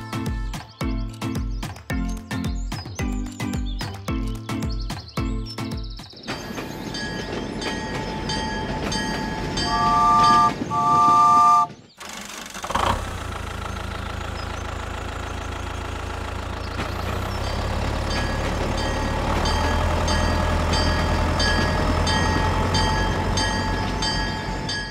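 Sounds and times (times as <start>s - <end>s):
toy train electronic horn: 9.6s - 11.8s
low motor hum: 12.6s - 24.9s
regular ticking: 12.6s - 24.9s.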